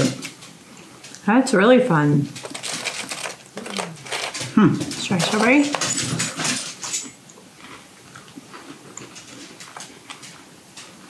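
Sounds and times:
freeze-dried strawberry crunching: 2.3s - 6.2s.

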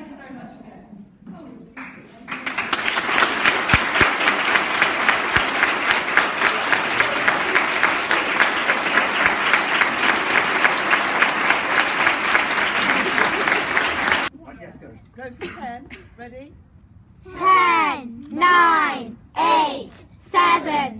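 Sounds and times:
audience applauding: 1.8s - 14.3s
close hands clapping quickly: 1.8s - 14.3s.

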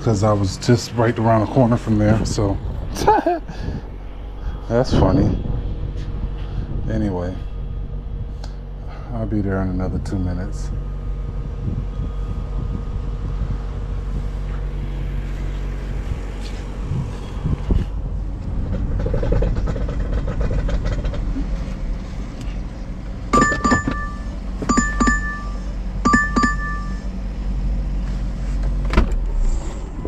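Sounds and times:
low rumble of handling noise: 0.0s - 30.0s
two-tone electronic chime: 23.4s - 27.1s.

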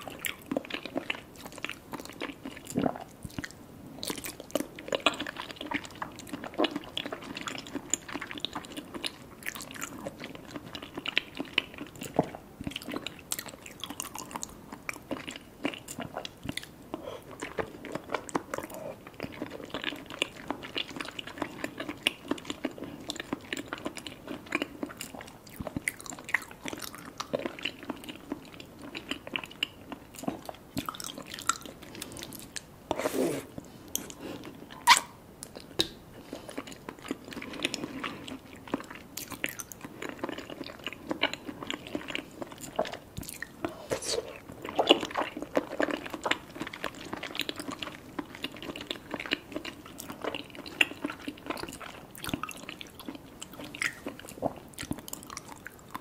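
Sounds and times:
mouth clicks and smacks: 33.5s - 36.0s, 43.2s - 45.0s, 53.7s - 55.7s
wet chewing and biting: 34.8s - 56.0s.

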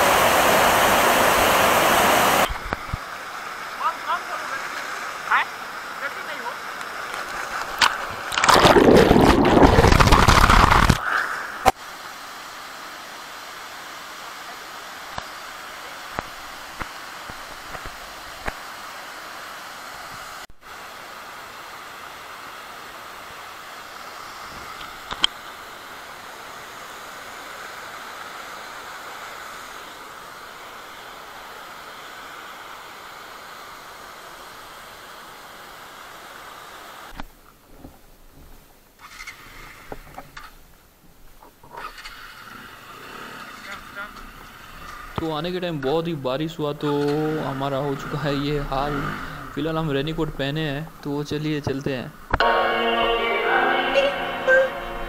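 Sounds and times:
waterfall rushing: 0.0s - 37.2s, 42.3s - 55.0s
water splashing on camera: 7.2s - 11.8s.

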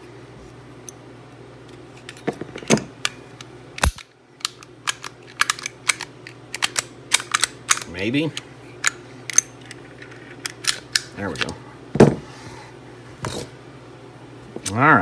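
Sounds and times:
pistol metal clicks and clacks: 3.8s - 7.9s.

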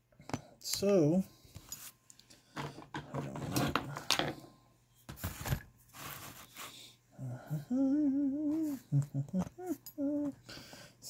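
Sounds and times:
man humming: 7.2s - 10.4s.

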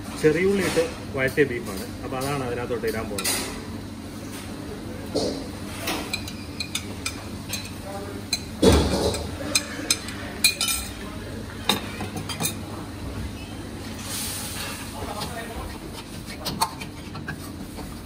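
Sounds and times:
spoon clinking against bowl: 6.1s - 8.5s, 9.1s - 11.0s.

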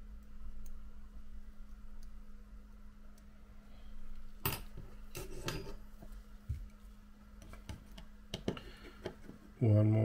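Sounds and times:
metal tool scraping: 5.1s - 5.8s.

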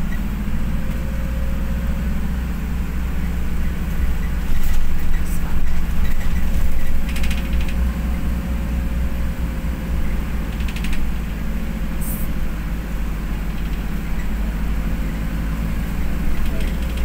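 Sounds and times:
bus engine and road rumble: 0.0s - 17.0s
short rattle: 4.2s - 7.9s, 10.4s - 11.4s, 13.4s - 14.4s, 16.2s - 17.0s.

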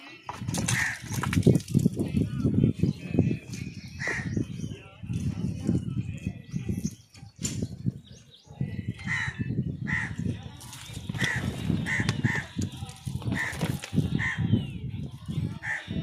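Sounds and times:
crows cawing: 0.7s - 1.1s, 9.1s - 10.2s, 11.2s - 12.5s, 13.3s - 13.6s.

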